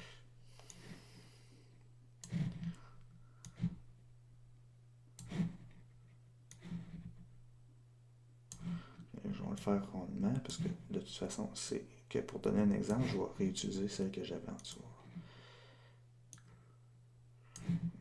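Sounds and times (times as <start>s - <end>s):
steady low hum: 0.0s - 18.0s
computer mouse clicks: 0.6s - 0.9s, 2.2s - 2.8s, 3.4s - 3.8s, 5.2s - 5.8s, 6.5s - 7.1s, 8.5s - 8.8s, 16.3s - 16.6s, 17.5s - 18.0s.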